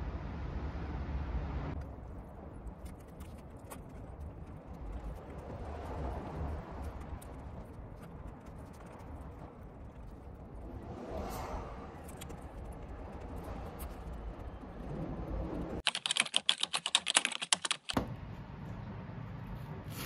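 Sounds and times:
rapid sharp clicks: 15.8 - 18.0.

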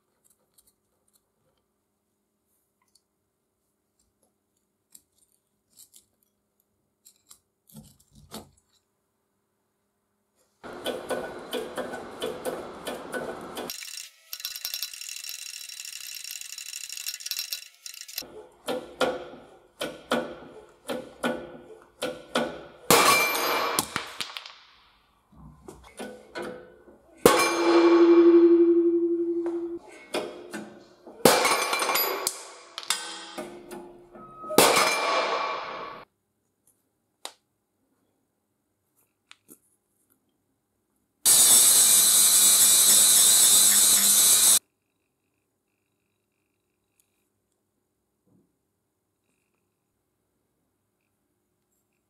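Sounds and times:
loud ringing metal clang: 22.9 - 23.9, 27.3 - 29.8
metallic cracks and pops: 22.9 - 24.8.

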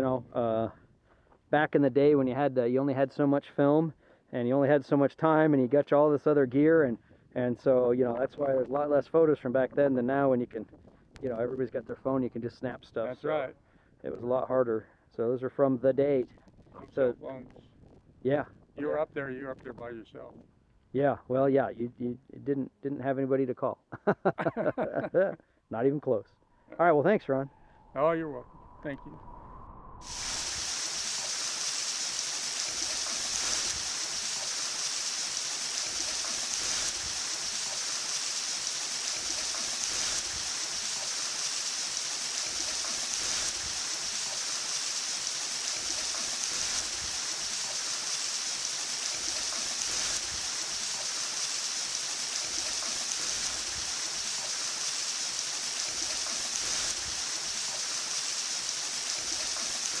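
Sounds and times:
waterfall rushing: 30.0 - 60.0.

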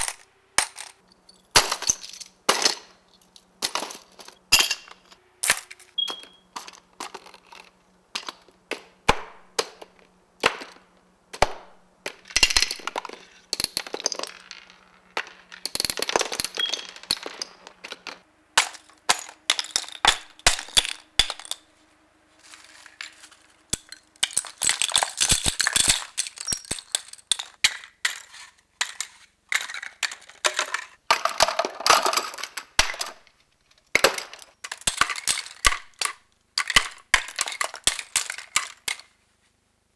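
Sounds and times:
wooden sticks and cardboard tubes dropping: 0.0 - 21.8, 22.4 - 39.2
glass bottles clinking: 3.6 - 8.4, 12.4 - 21.6, 23.0 - 28.2.

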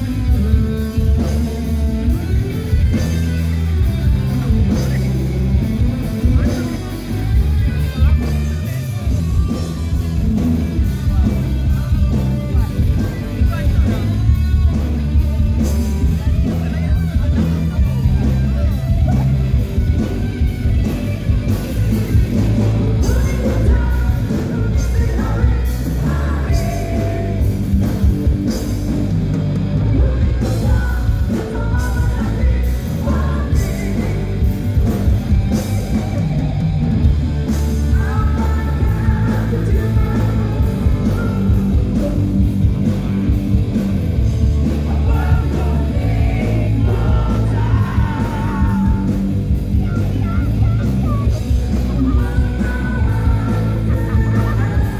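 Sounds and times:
live heavy metal band: 0.0 - 54.9
person singing: 22.4 - 28.3, 29.9 - 36.0, 37.7 - 43.0, 44.6 - 54.9.

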